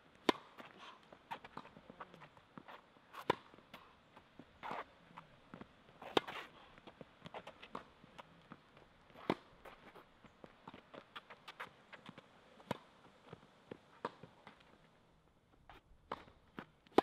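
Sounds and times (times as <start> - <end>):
footsteps on court: 0.1 - 17.0
tennis ball being struck: 0.2 - 0.6, 3.2 - 3.8, 9.1 - 9.5.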